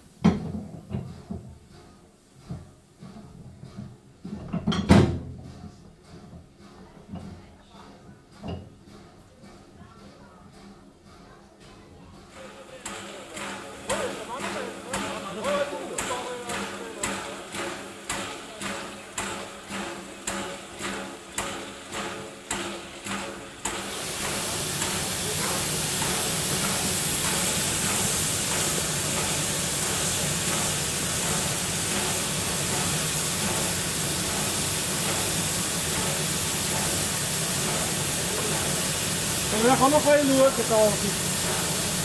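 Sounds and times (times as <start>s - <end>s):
steam locomotive beating rhythmically: 0.0s - 4.6s, 5.2s - 42.0s
loud hiss of escaping steam: 12.4s - 42.0s.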